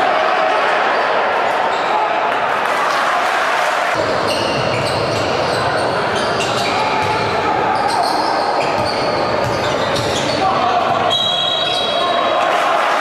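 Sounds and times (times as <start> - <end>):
sneakers squeaking: 4.0 - 12.3.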